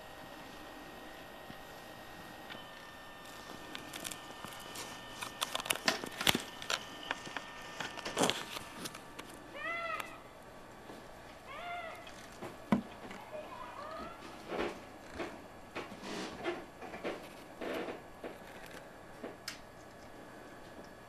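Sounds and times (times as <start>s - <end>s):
meow-like calls: 9.5s - 10.2s, 11.4s - 12.3s, 13.3s - 14.2s.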